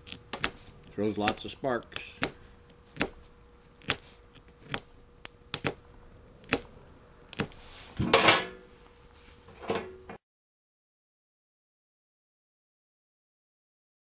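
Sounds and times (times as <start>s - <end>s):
sharp clicks and knocks: 3.8s - 5.8s.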